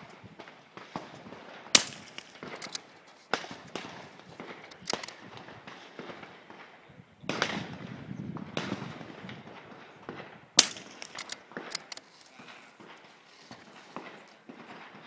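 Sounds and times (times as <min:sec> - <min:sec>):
rifle shot: 0:00.0 - 0:06.6, 0:07.2 - 0:12.0
gunfire cracks: 0:00.0 - 0:15.0.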